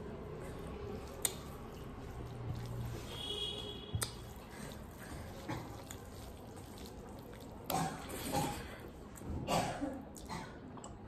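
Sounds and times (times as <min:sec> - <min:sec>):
soft chewing: 0:00.0 - 0:09.4
fingers squishing rice: 0:00.3 - 0:08.0.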